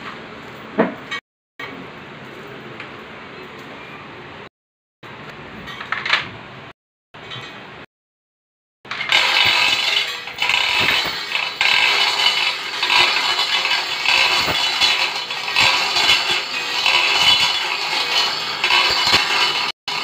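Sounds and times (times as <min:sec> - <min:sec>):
chain hoist rattling and clinking: 0:08.9 - 0:20.0.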